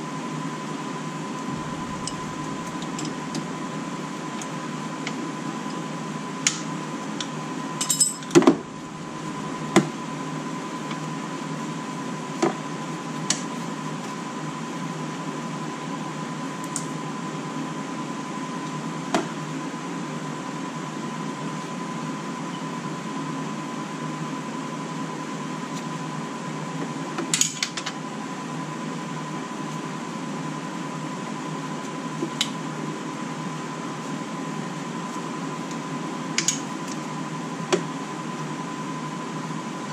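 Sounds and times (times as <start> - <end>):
steady hum: 0.0 - 12.2
faint whine: 1.0 - 6.3, 8.6 - 11.4.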